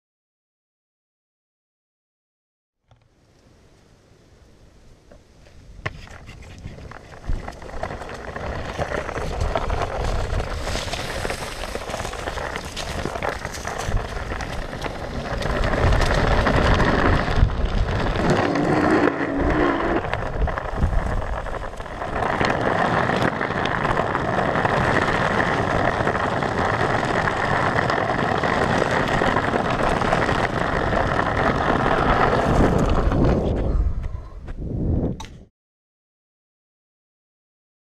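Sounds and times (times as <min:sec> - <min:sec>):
skateboard wheels rolling: 0:04.8 - 0:35.1
wind on microphone: 0:05.6 - 0:35.5.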